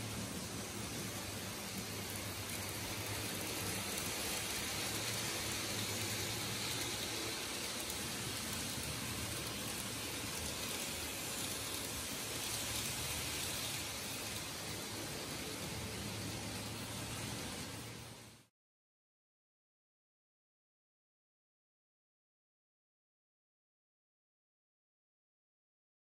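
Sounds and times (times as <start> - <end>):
model trains whirring on track: 0.0 - 18.5.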